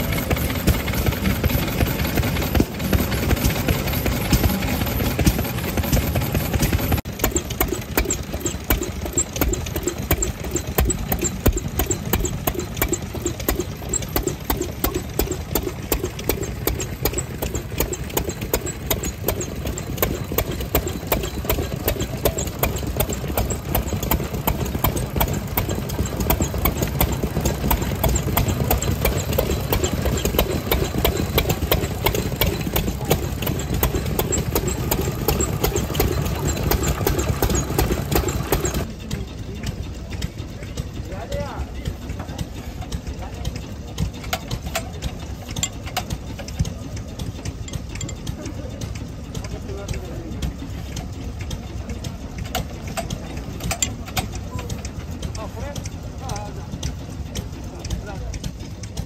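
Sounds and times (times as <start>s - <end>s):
old farm engine knocking: 0.0s - 59.0s.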